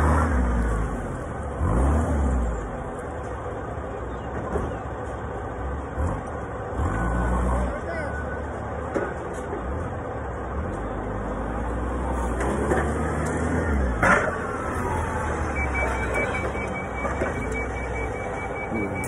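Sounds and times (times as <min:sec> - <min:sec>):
engine humming: 0:00.0 - 0:19.0
forklift warning alarm beeping: 0:14.8 - 0:19.0.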